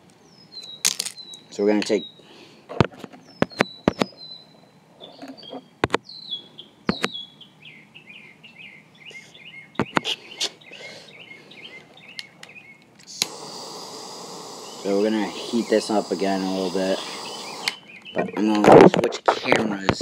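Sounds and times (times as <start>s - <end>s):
birds chirping: 0.0s - 18.8s
sharp clicks: 14.6s - 18.1s.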